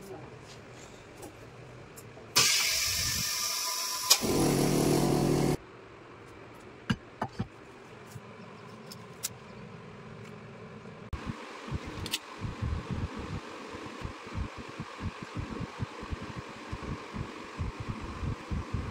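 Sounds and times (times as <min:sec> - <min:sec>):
machine air hissing: 0:02.4 - 0:05.6
low coarse air rush: 0:09.8 - 0:18.9.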